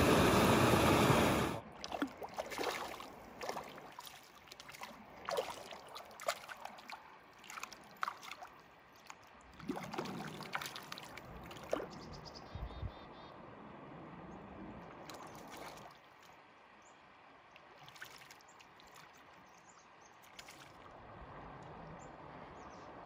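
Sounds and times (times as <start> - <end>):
fish splashing in water: 1.4 - 12.0, 15.0 - 16.3, 17.6 - 19.4, 20.2 - 20.9.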